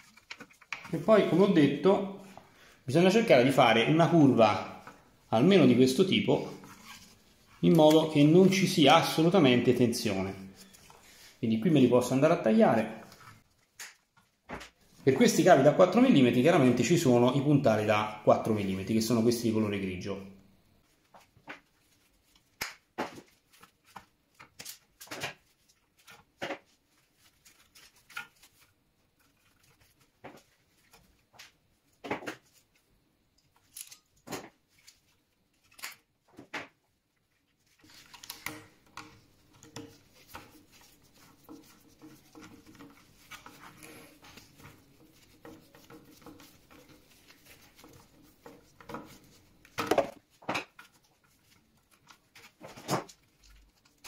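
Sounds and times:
clicks and taps handling wires: 0:00.0 - 0:01.1, 0:13.0 - 0:14.8, 0:27.5 - 0:54.0.

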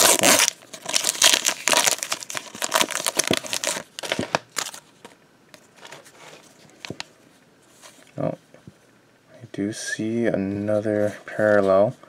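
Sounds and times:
foil wrapper crinkling: 0:00.0 - 0:05.1
cards rustling: 0:00.0 - 0:07.1.

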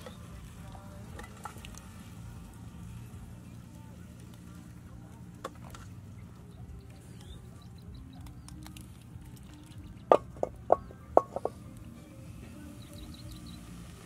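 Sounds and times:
metal pots clanking: 0:01.1 - 0:01.8, 0:10.1 - 0:11.6
faint bird chirps: 0:06.1 - 0:08.8, 0:12.0 - 0:14.0.

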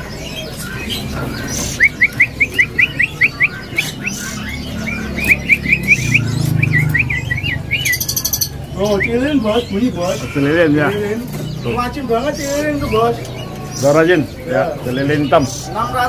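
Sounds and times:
songbird singing whistled notes: 0:00.0 - 0:11.8.

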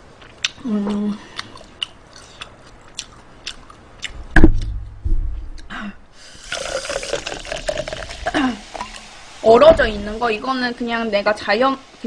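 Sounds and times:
loud knock: 0:04.3 - 0:05.6
cola pouring into a cup: 0:06.2 - 0:09.2.

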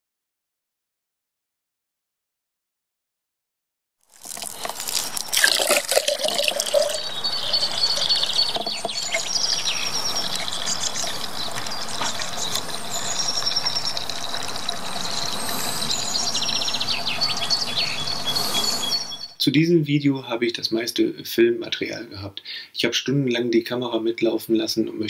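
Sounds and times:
water pouring from a hose: 0:04.0 - 0:17.0
birds singing: 0:04.7 - 0:19.4.

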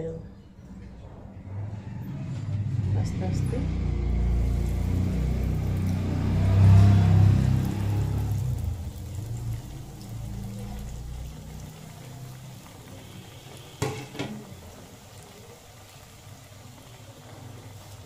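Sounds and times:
food sizzling in hot oil: 0:03.7 - 0:18.0.

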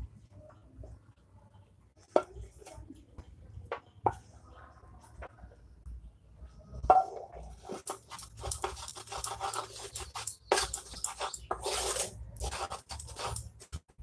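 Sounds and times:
spatula scraping metal pan: 0:07.5 - 0:13.5.

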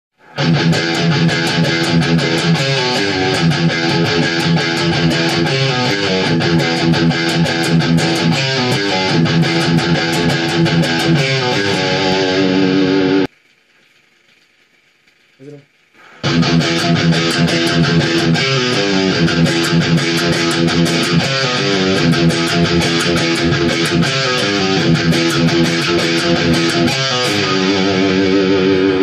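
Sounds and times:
distorted electric guitar riff: 0:00.1 - 0:13.3, 0:15.4 - 0:29.0.

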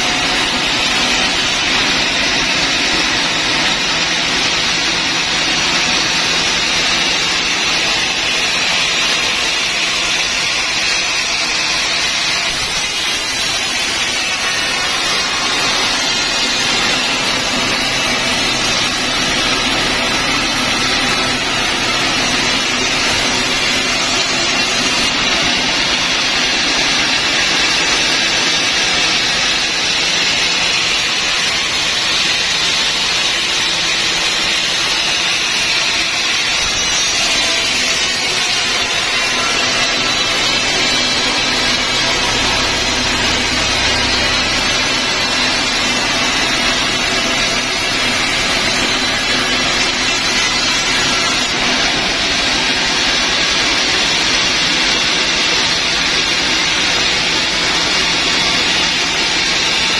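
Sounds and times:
sawmill drive drone: 0:00.0 - 0:59.9.

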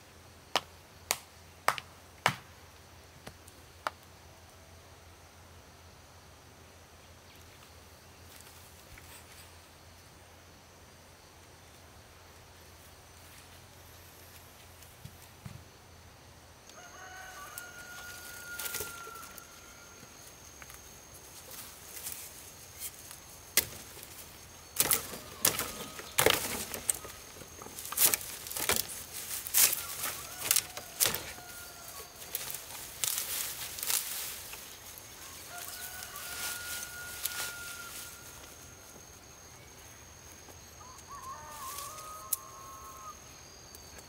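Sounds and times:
rooster crowing: 0:16.6 - 0:20.3, 0:24.7 - 0:27.6, 0:29.5 - 0:33.1, 0:35.0 - 0:38.8, 0:40.7 - 0:43.4
undergrowth rustling and snapping: 0:16.7 - 0:19.4, 0:20.5 - 0:38.5.

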